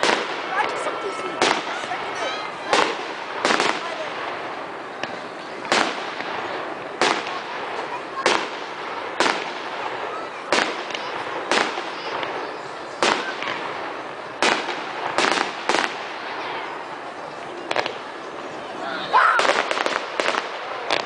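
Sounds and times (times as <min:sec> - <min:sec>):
firework shells bursting: 0:13.0 - 0:16.2.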